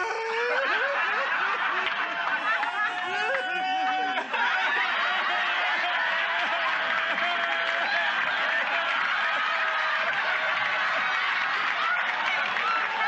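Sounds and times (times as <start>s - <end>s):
woman wailing: 0.0s - 1.0s
audience laughing and applauding: 0.0s - 13.0s.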